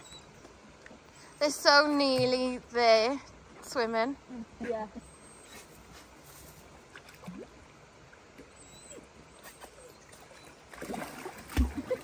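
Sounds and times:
dogs splashing in shallow water: 9.7 - 12.0.

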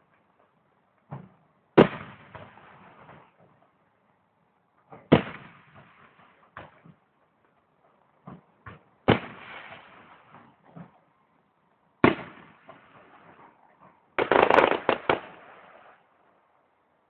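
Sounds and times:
firework booms: 1.2 - 3.3, 5.0 - 6.3, 9.0 - 10.5, 12.0 - 13.4, 14.2 - 15.9
faint firework pops: 14.2 - 15.6.

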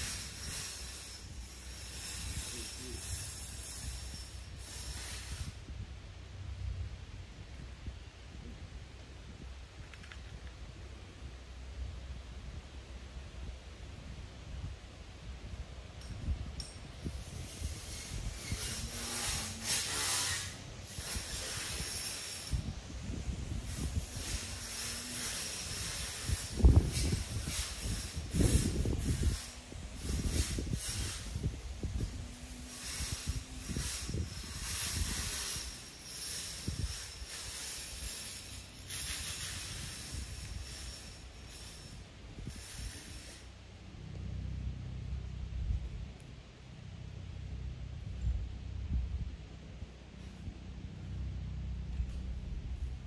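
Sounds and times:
weed eater cutting grass: 0.0 - 5.6, 17.0 - 43.5.

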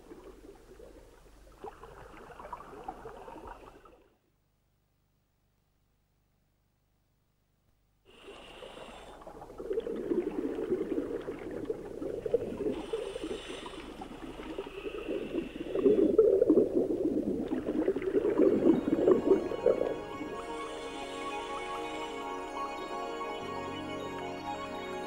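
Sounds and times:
underwater air bubbling: 0.0 - 4.0, 8.1 - 21.4
hissing regulator breaths: 8.1 - 9.3, 12.7 - 16.2, 20.4 - 22.2.

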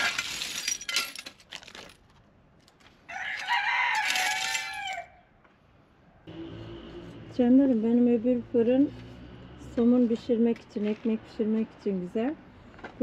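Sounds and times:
glass shards clinking: 0.0 - 2.0, 3.9 - 4.8
rooster crowing: 3.1 - 5.3.

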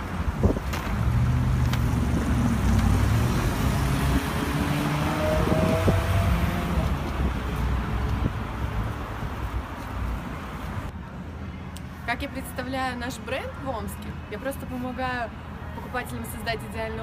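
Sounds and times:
passing cars rumbling: 0.0 - 10.9.

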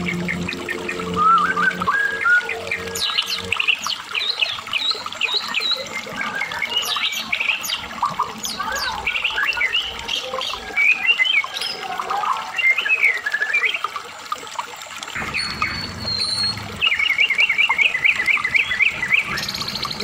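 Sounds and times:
songbird whistling and chattering: 1.2 - 11.8, 15.2 - 20.0.

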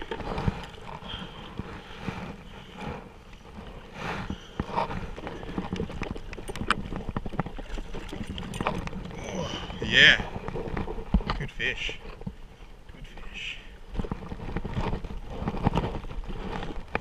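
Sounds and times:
water noise: 0.0 - 17.0
wind: 0.0 - 17.0.

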